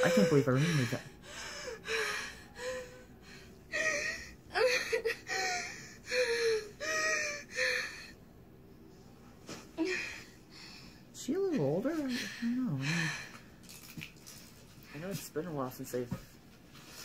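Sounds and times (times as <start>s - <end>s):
girl gasping and whimpering: 0.0s - 8.2s, 9.8s - 10.8s.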